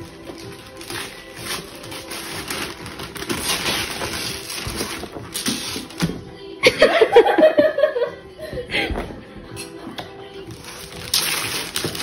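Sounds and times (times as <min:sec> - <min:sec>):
wrapping paper rustling and tearing: 0:00.0 - 0:06.2, 0:10.5 - 0:12.0.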